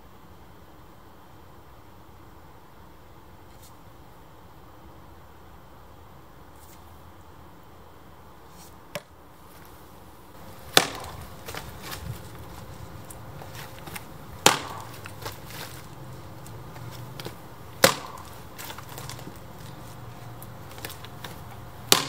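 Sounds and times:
axe chopping firewood: 10.4 - 22.0.

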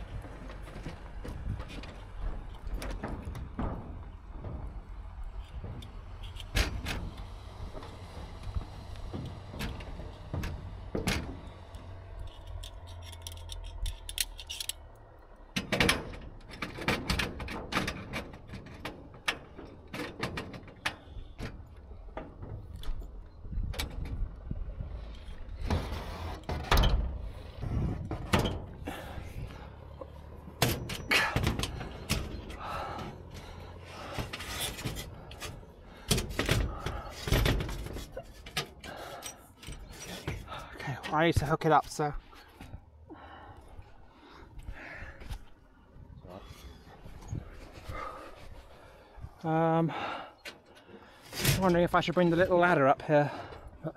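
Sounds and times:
knocks and clatter on metal roof: 0.0 - 12.2, 15.5 - 43.3.

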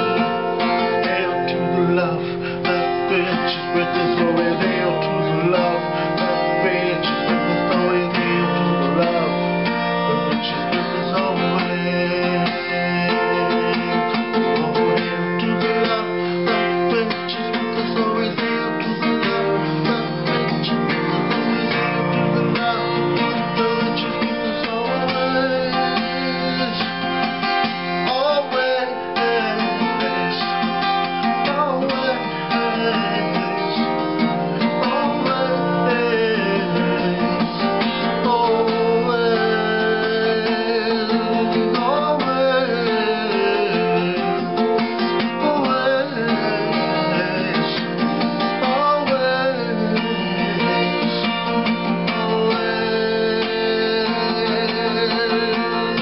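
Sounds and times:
acoustic guitar strumming: 0.0 - 56.0.

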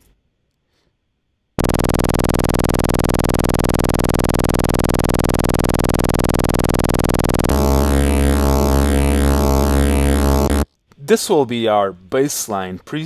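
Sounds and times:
buzzy synthesizer drone: 1.6 - 10.7.

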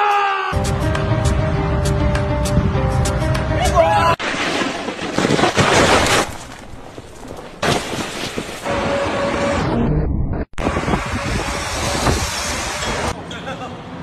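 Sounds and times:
road traffic: 0.6 - 3.6, 8.6 - 9.9, 10.5 - 14.0.

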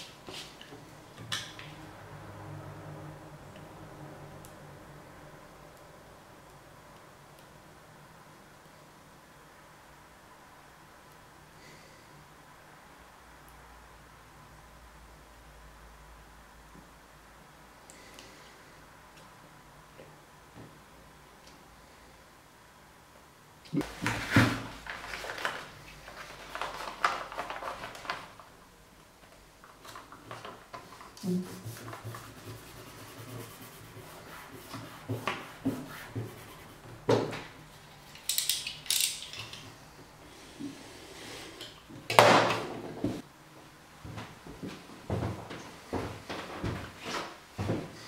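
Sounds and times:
paper rustling: 23.9 - 28.5.

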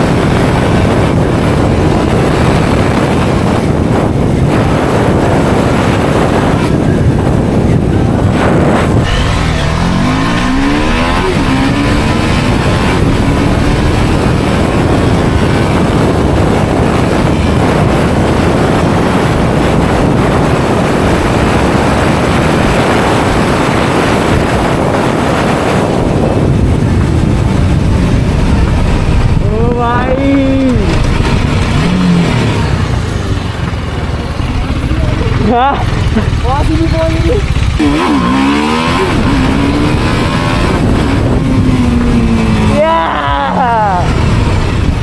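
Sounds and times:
motorcycle engine running: 0.0 - 45.0
wind rush on microphone: 0.0 - 45.0.

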